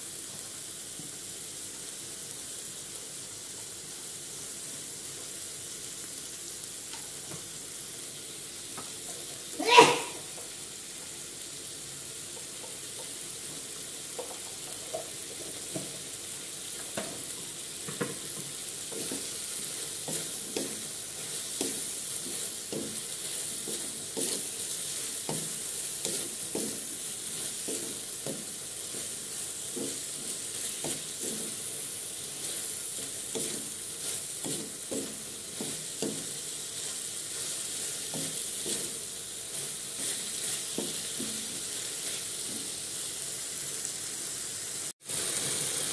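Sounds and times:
meat sizzling in a wok: 0.0s - 45.9s
spatula knocking and scraping a pan: 12.3s - 16.0s, 16.8s - 42.8s.

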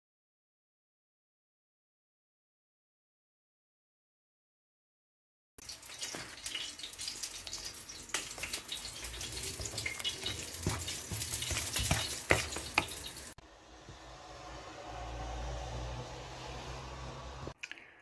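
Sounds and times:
spoon stirring wet mixture: 5.7s - 13.4s.

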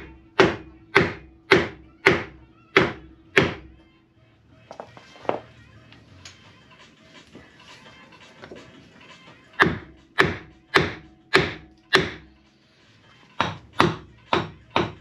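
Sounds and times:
hammer knocking on wooden block: 0.0s - 3.7s, 9.6s - 12.3s, 13.4s - 15.0s.

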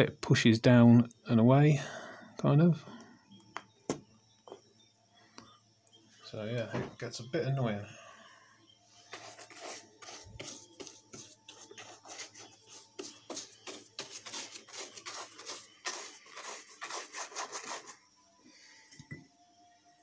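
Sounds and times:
paintbrush scrubbing: 9.1s - 18.0s.

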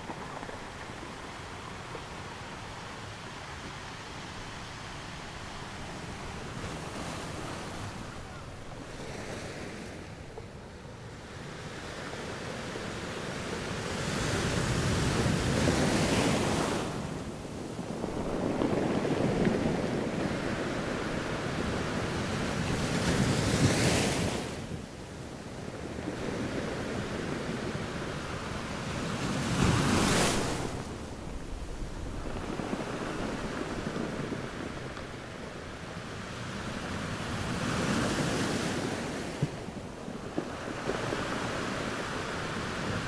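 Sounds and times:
sea waves breaking on sand: 11.6s - 43.0s.

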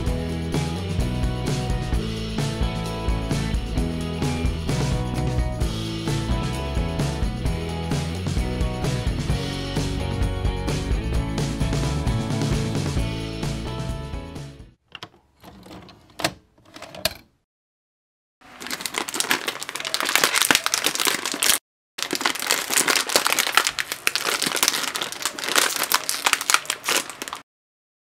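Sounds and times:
plastic wrapper crinkling: 18.4s - 27.4s.

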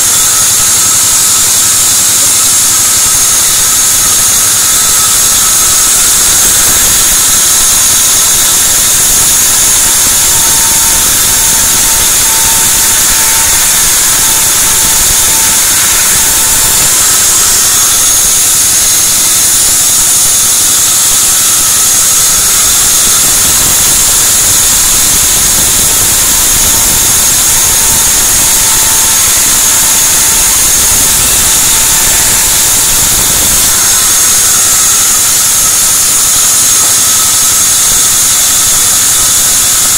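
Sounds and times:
faint saw whine: 0.0s - 39.9s
sawmill saw running: 0.0s - 39.9s.

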